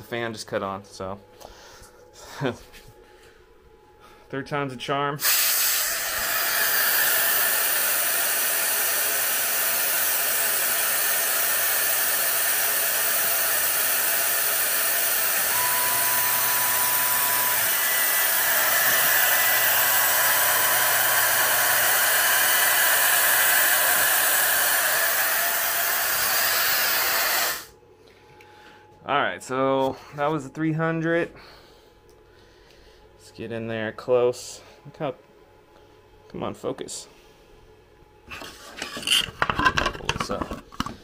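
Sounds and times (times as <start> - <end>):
thin whine: 8.3 - 30.3.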